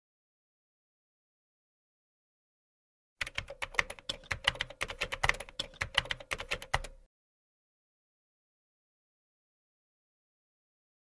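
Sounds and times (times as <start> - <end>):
rapid keyboard typing: 3.2 - 7.1.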